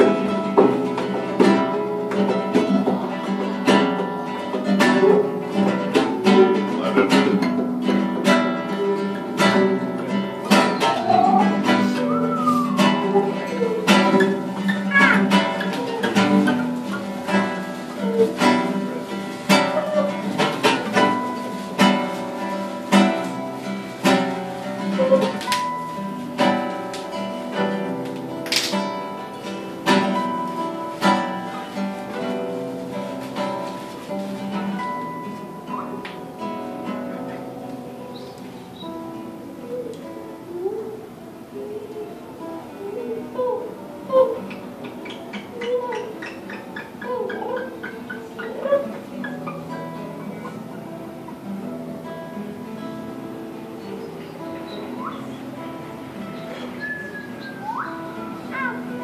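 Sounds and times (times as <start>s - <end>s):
acoustic guitars strumming: 0.0s - 59.0s
harmonica playing: 8.4s - 26.7s.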